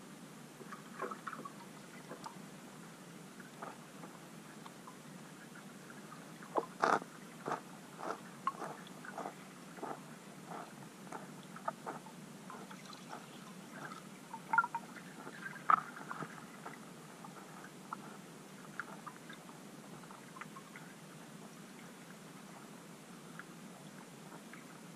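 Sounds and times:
steady water hiss: 0:00.0 - 0:24.9
underwater fish clicks and pops: 0:14.3 - 0:14.9.

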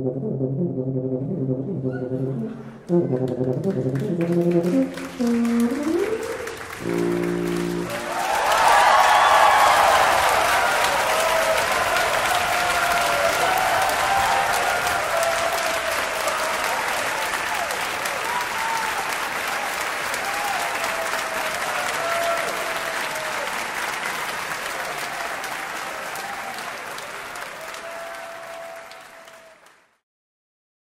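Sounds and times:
audience applauding: 0:03.1 - 0:30.0
voices whooping: 0:07.9 - 0:19.0.

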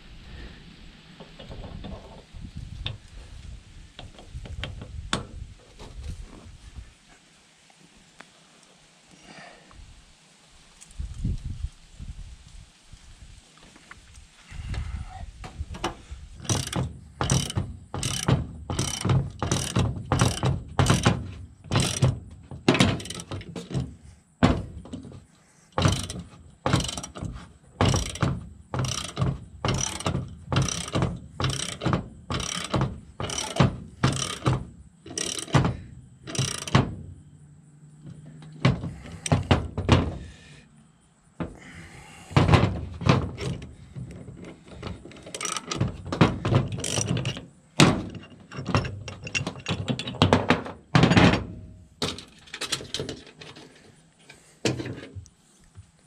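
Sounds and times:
ratchet wrench clicking: 0:16.4 - 0:21.1, 0:21.7 - 0:22.1, 0:22.8 - 0:23.4, 0:25.8 - 0:27.2, 0:27.8 - 0:34.5, 0:35.1 - 0:35.6, 0:36.3 - 0:36.8, 0:45.2 - 0:45.8.

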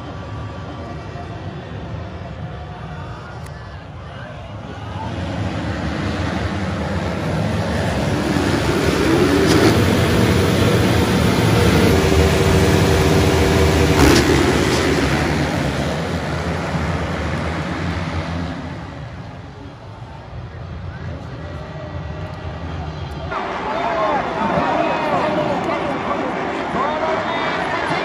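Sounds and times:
motocross engines revving: 0:04.6 - 0:19.7.

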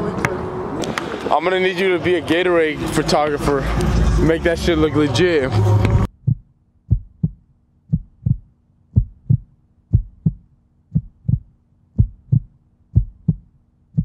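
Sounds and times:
heartbeat thumps: 0:06.1 - 0:14.0.

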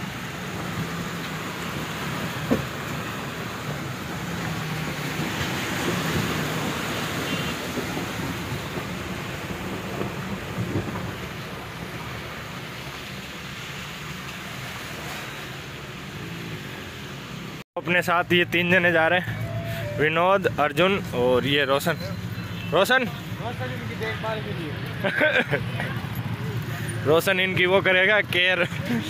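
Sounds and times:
tyres swishing through water and mud: 0:00.0 - 0:17.6.

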